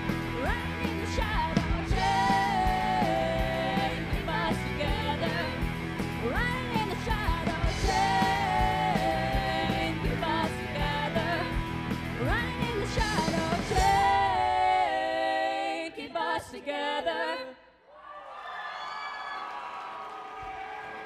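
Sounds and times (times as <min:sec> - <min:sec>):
live rock band playing: 0:00.0 - 0:14.3.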